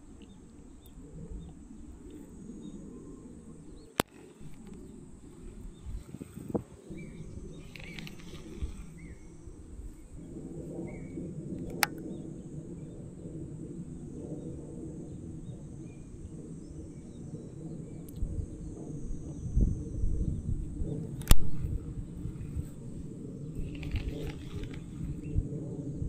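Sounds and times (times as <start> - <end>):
insect drone: 0.0 - 26.0
low rumbling noise: 0.0 - 26.0
bird chirps: 6.8 - 9.6
sharp clicks: 7.6 - 8.6, 11.6 - 12.1, 21.2 - 21.7, 23.6 - 24.9.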